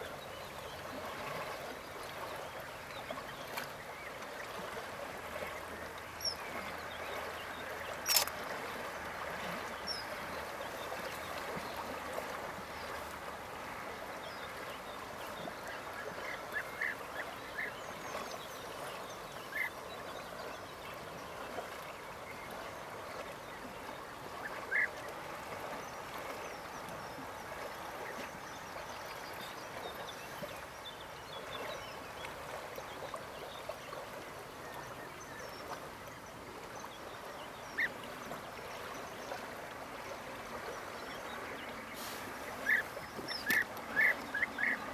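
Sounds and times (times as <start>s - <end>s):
background hiss: 41.9s - 42.7s.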